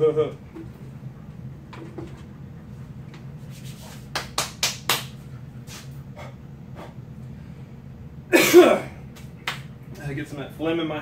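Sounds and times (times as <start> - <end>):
steady low hum: 0.0 - 11.0
hand claps: 4.1 - 5.2, 9.1 - 9.7.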